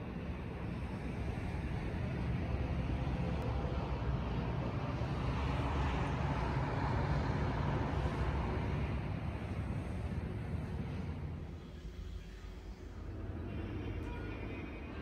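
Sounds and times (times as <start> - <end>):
distant city traffic rumble: 0.0 - 15.0.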